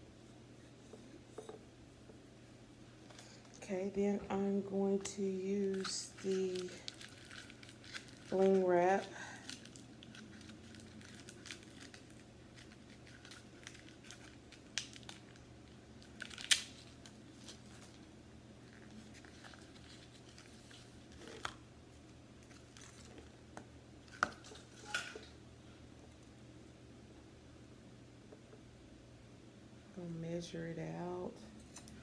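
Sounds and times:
ribbon packaging rustling: 0:03.0 - 0:21.6.

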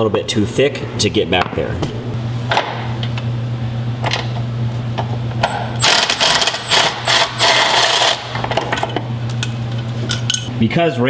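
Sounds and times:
steady low hum: 0:00.0 - 0:11.0
hand ratchet clicking: 0:05.8 - 0:08.3.

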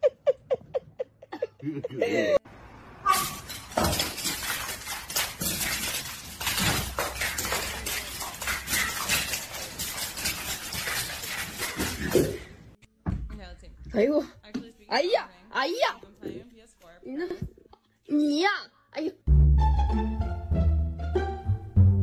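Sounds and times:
animals scrabbling on marble floor: 0:03.1 - 0:12.6.

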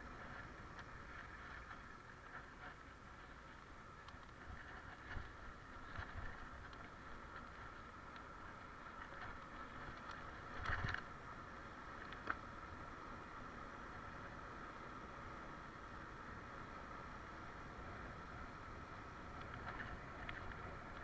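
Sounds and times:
bike rattling over bumps: 0:00.0 - 0:12.8
bike tyres rolling on asphalt: 0:00.0 - 0:21.0.

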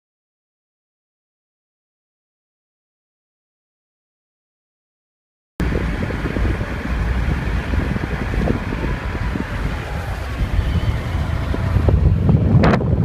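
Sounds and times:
low road rumble: 0:05.6 - 0:13.0
wind buffeting microphone: 0:05.6 - 0:13.0.

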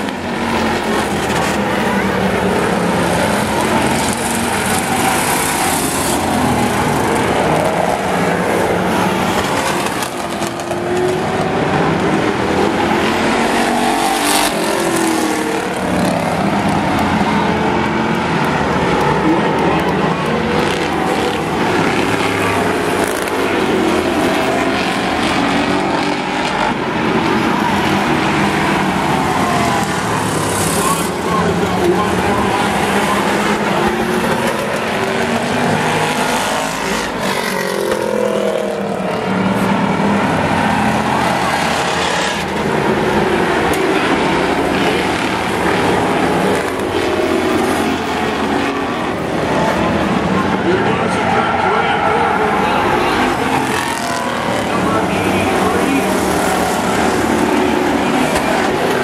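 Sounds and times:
race car engines running: 0:00.0 - 0:59.0.

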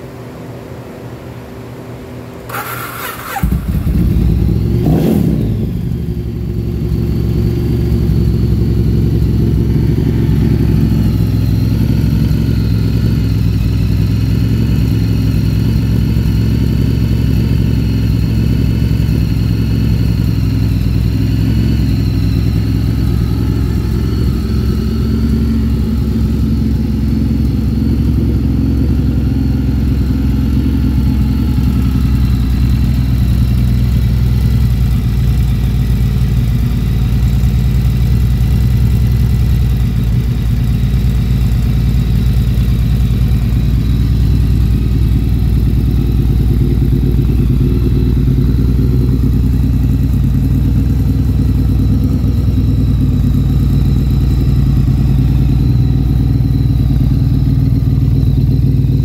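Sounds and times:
motorcycle engine revving and idling: 0:02.4 - 0:59.0
motorcycle engine starter cranking: 0:02.5 - 0:04.2.

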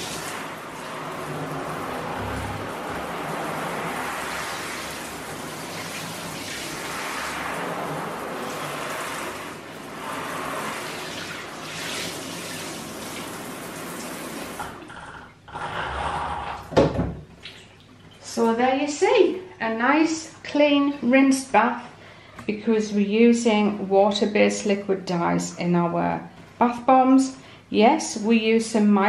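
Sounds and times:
water draining in a bathtub: 0:00.0 - 0:20.4.

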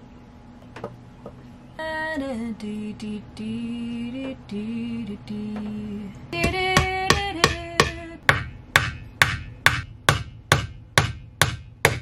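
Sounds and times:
woman singing slow melody: 0:01.7 - 0:08.2.

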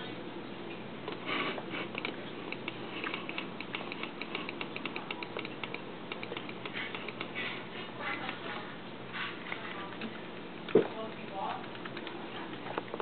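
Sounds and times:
keyboard typing: 0:01.7 - 0:07.4, 0:09.9 - 0:13.0.

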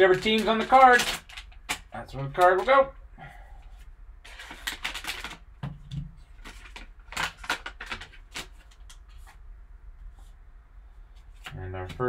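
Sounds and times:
foil wrapping crinkling and tearing: 0:00.0 - 0:02.8, 0:04.2 - 0:05.4, 0:06.3 - 0:08.9.

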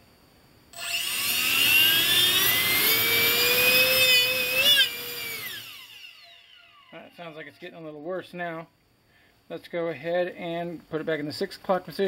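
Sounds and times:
electric ducted fan whining: 0:00.0 - 0:08.7.

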